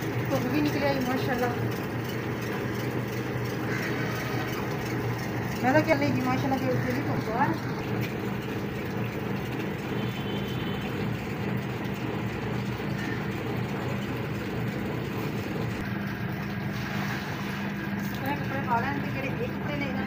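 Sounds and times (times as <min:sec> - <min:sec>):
washing machine motor humming: 0:00.0 - 0:20.0
water tipped from bucket: 0:16.7 - 0:18.5.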